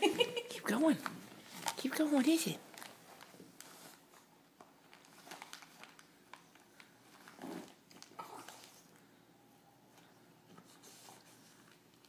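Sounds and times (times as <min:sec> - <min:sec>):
wrapping paper crinkling: 0:01.4 - 0:09.0.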